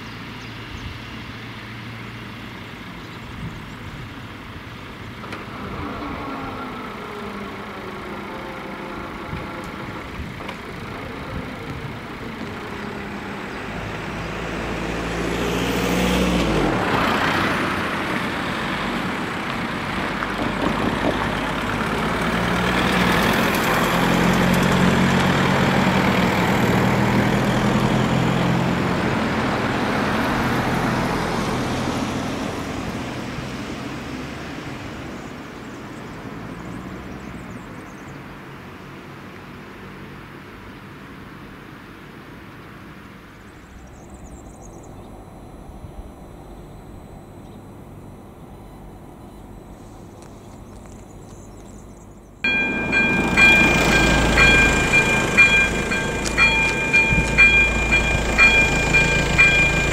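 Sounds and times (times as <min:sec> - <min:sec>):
car engine and tyres: 0:00.0 - 0:59.9
vehicle passing by: 0:05.4 - 0:37.6, 0:52.5 - 0:59.9.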